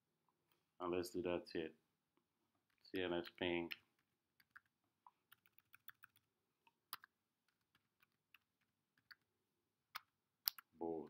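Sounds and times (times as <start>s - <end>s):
faint keyboard typing: 2.6s - 9.3s.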